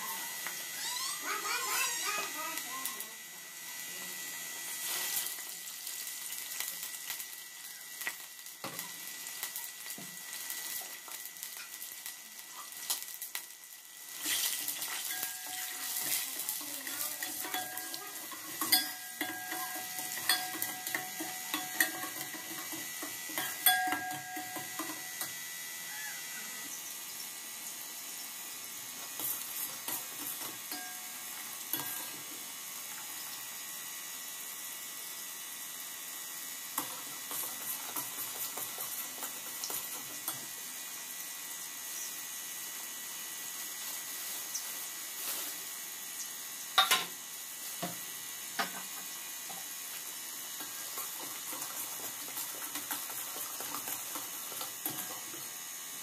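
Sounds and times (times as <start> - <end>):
ladle clinking against pot: 17.3 - 22.7, 23.3 - 25.0.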